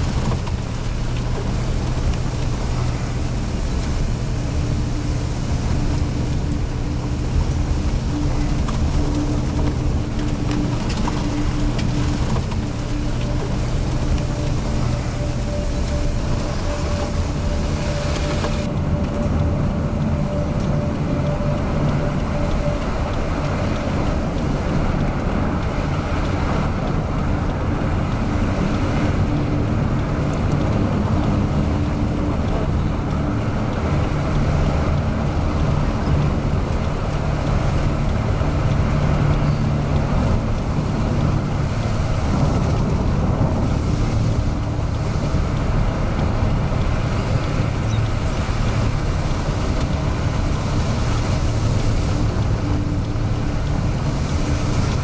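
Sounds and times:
car road and engine noise: 0.0 - 55.0.

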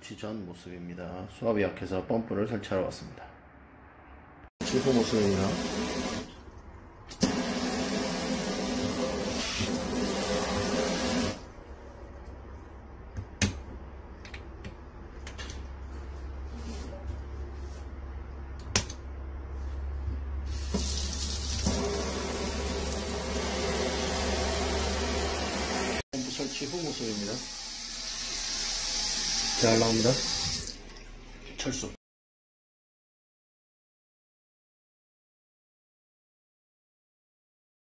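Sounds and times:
faucet running into steel sink: 20.5 - 31.6.

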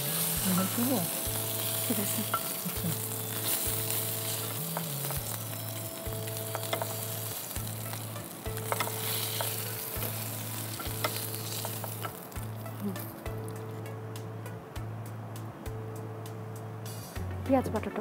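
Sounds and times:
fish sizzling in hot oil: 0.0 - 13.6.

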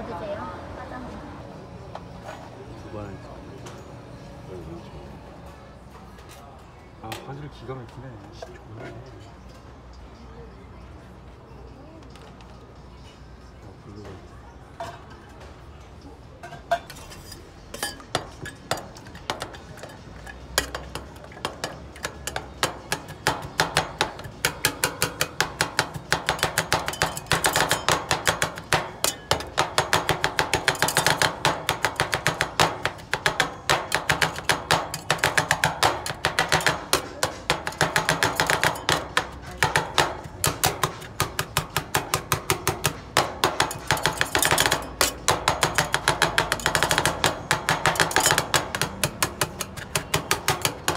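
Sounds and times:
metal spatulas clattering on steel: 16.4 - 50.9.

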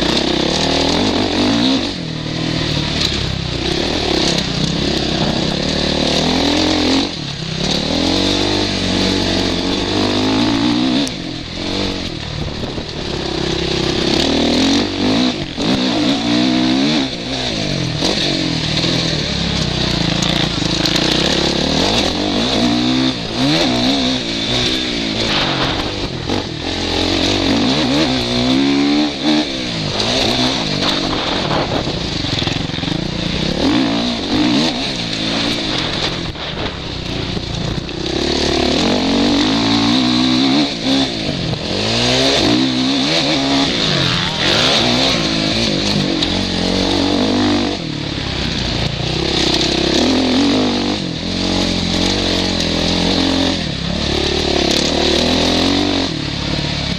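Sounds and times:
motocross bike engine revving: 0.0 - 56.9
wind rushing: 25.1 - 26.7.

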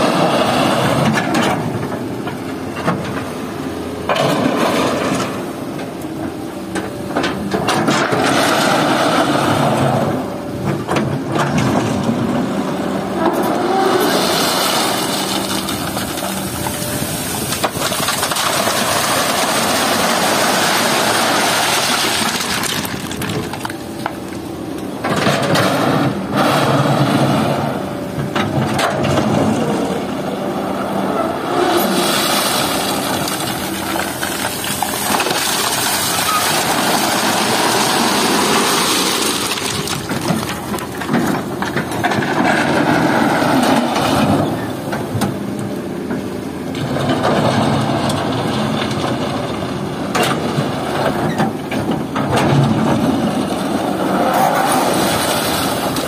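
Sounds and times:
excavator diesel engine revving: 0.0 - 56.0
stones pouring into steel truck bed: 13.7 - 24.2, 31.6 - 44.5, 50.3 - 56.0
excavator bucket clanking: 31.7 - 45.4.

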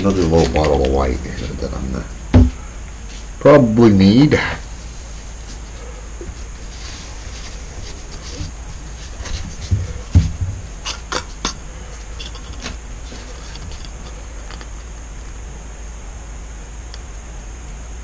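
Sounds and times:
steady low hum: 0.0 - 18.0
dull thumps: 2.3 - 2.7, 7.5 - 11.6.

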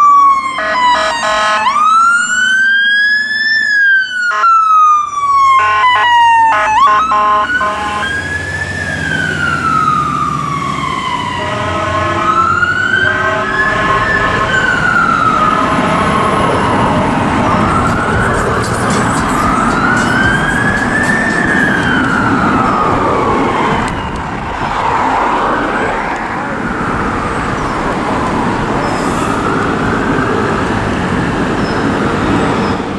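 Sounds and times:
fire engine siren wailing: 0.0 - 32.9
bullhorn blasts: 5.6 - 8.2, 11.4 - 14.6.

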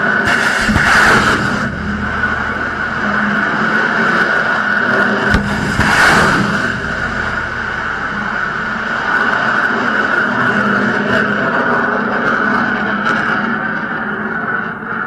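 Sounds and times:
rocket exhaust roar: 0.0 - 14.1
sharp crack: 0.2 - 4.3, 5.3 - 9.8.

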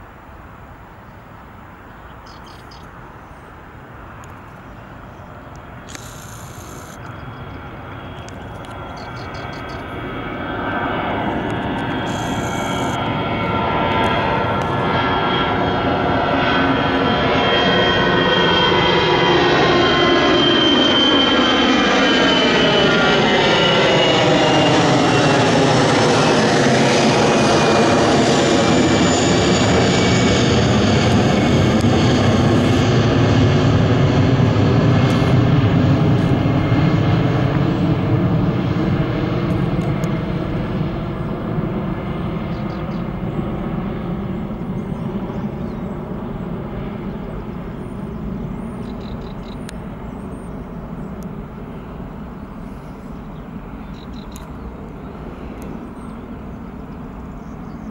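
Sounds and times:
jet airliner passing overhead: 0.0 - 57.9.

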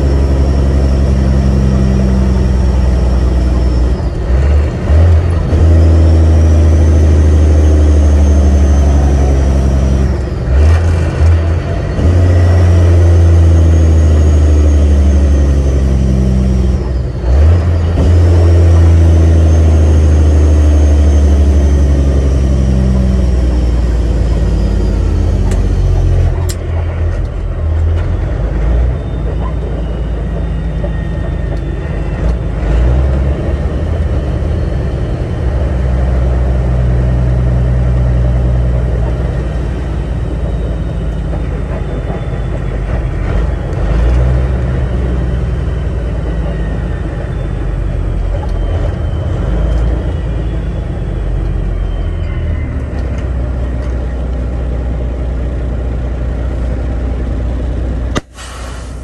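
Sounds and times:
truck diesel engine downshifting: 0.0 - 59.0.

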